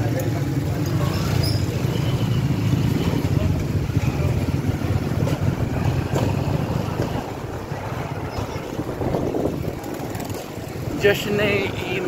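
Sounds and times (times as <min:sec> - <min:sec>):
motorcycles rumbling past: 0:00.6 - 0:12.0
wind buffeting microphone: 0:03.6 - 0:12.0.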